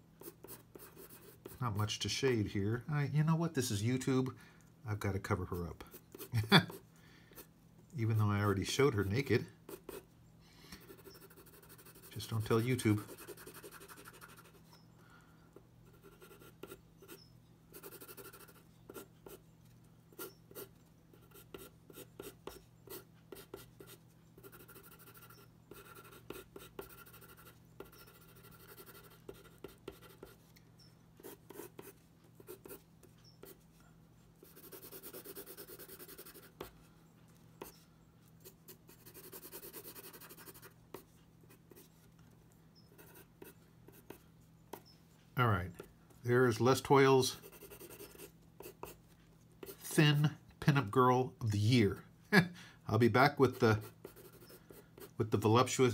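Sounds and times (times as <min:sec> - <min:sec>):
pencil scratching on paper: 0:00.2 - 0:01.9, 0:08.4 - 0:10.1, 0:10.8 - 0:14.8, 0:15.8 - 0:19.4, 0:20.1 - 0:30.5, 0:31.2 - 0:33.7, 0:34.4 - 0:36.7, 0:38.4 - 0:42.1, 0:42.9 - 0:44.9, 0:47.2 - 0:49.0, 0:53.4 - 0:55.8.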